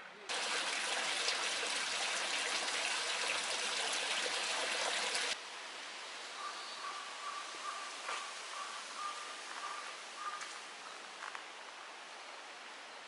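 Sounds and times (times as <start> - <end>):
water splashing into stone basin: 0.3 - 5.4.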